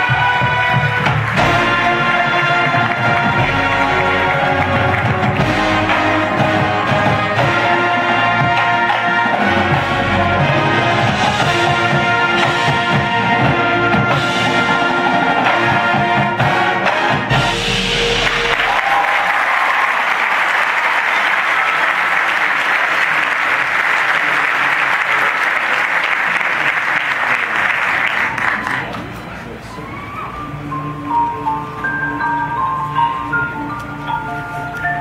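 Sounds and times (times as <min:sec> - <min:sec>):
crowd applauding and cheering: 0:00.0 - 0:12.2, 0:17.3 - 0:30.5
marching brass and percussion: 0:00.0 - 0:28.8.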